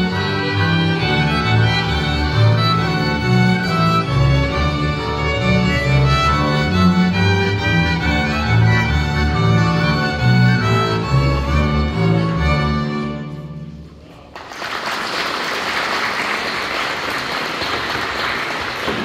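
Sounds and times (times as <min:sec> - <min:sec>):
folk string band playing: 0:00.0 - 0:13.9
audience applause: 0:14.2 - 0:19.0.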